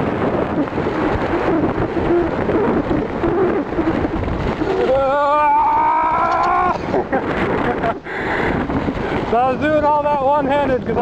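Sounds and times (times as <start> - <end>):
bicycle tyres crunching on gravel: 0.0 - 7.8
wind buffeting microphone: 0.0 - 11.0.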